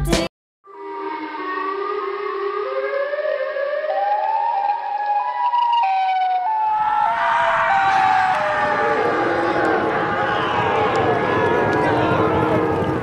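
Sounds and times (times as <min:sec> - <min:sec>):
siren-like wail: 0:00.7 - 0:13.0
rushing noise: 0:06.5 - 0:13.0.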